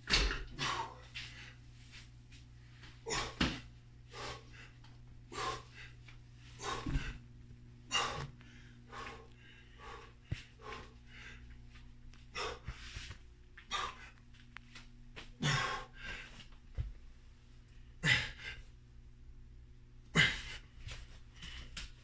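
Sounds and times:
man breathing hard: 0:00.5 - 0:01.6, 0:02.8 - 0:14.3, 0:15.3 - 0:16.5.

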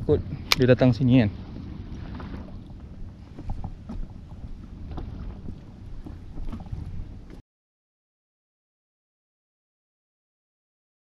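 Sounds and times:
small waves lapping against boat: 0:00.0 - 0:07.4
wind on microphone: 0:00.0 - 0:07.4.

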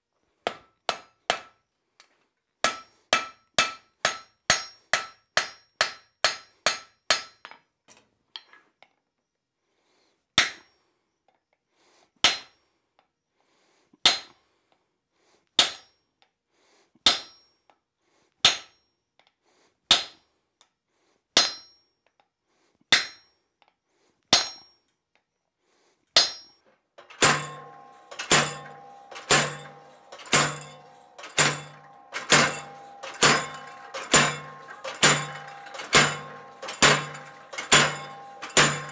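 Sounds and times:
hammer striking hot steel on anvil: 0:00.5 - 0:01.5, 0:02.6 - 0:07.5, 0:26.2 - 0:38.9.

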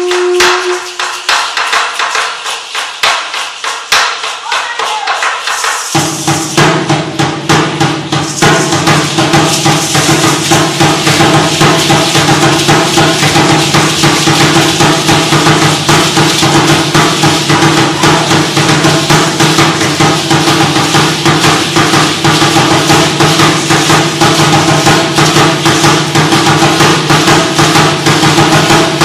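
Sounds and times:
shaken rattles clattering: 0:00.0 - 0:29.0
deep steady drum: 0:05.9 - 0:29.0.

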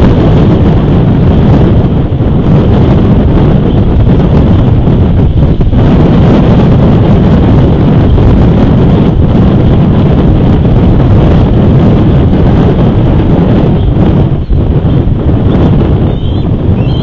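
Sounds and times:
strong wind on microphone: 0:00.0 - 0:17.0.

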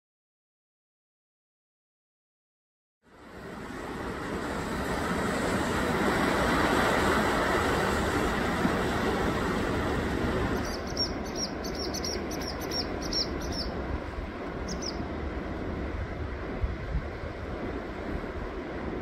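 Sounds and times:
waves washing onto rocky shore: 0:03.6 - 0:11.2
small bird chirping: 0:10.6 - 0:13.8, 0:14.6 - 0:15.0.

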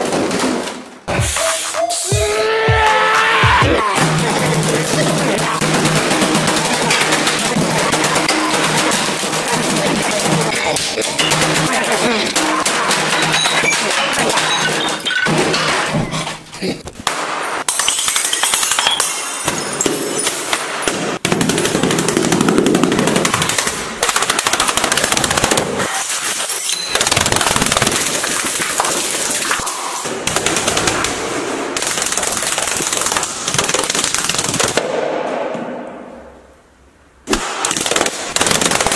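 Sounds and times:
rapid string of sharp bangs: 0:04.0 - 0:16.0, 0:20.4 - 0:26.0, 0:27.0 - 0:36.1, 0:37.2 - 0:38.9.

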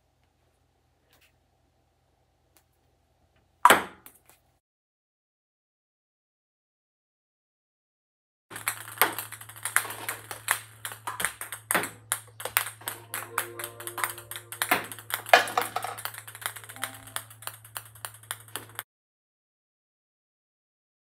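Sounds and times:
table tennis ball clicks: 0:08.5 - 0:13.1, 0:13.7 - 0:18.8.

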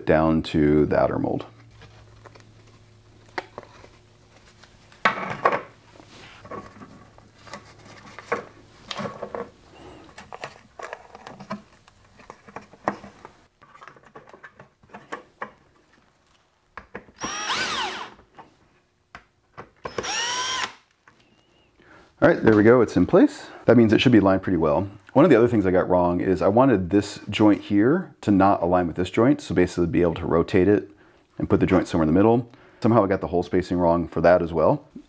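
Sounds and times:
plastic parts knocking and rustling: 0:05.0 - 0:05.8, 0:06.4 - 0:17.3
cordless drill driving screws: 0:17.2 - 0:18.2, 0:19.8 - 0:20.8.

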